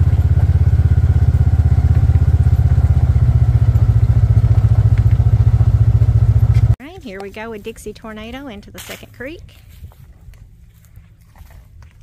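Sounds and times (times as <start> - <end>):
utility vehicle engine running: 0.0 - 6.8.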